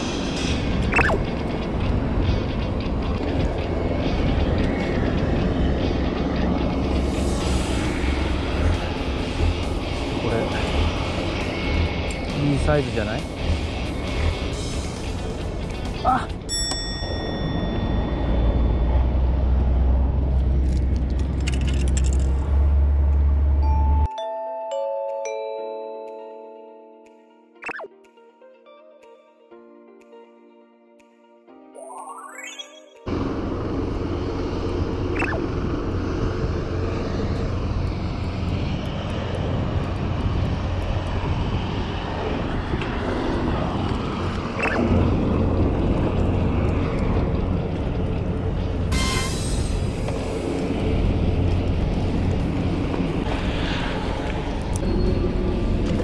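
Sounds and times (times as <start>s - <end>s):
music: 0.0s - 18.8s, 23.6s - 33.6s
outdoor rumble and rush: 0.0s - 24.1s, 33.1s - 56.0s
fishing tackle clicks and rattles: 21.1s - 22.4s
wind buffeting microphone: 33.2s - 48.9s.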